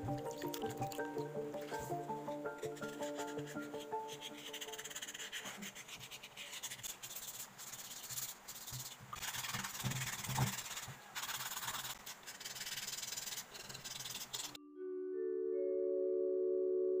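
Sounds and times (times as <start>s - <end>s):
hands rubbing wet plaster cast: 2.8s - 14.6s.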